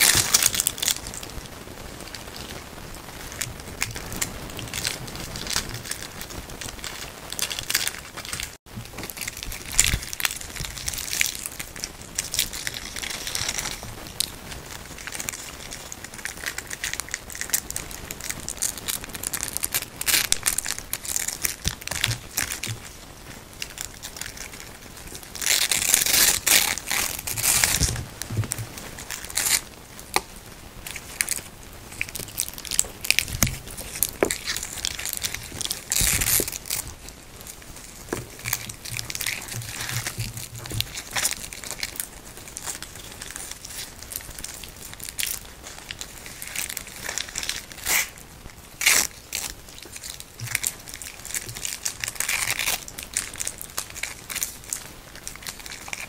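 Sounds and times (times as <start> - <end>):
velcro straps ripping: 14.9 - 22.9, 23.6 - 30.3, 30.9 - 48.2, 48.8 - 56.0.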